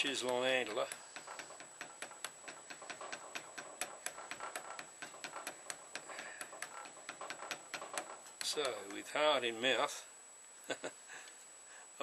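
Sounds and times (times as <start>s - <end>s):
faint high-pitched whine: 0.0s - 12.0s
rapid light ticking clicks: 0.1s - 9.1s.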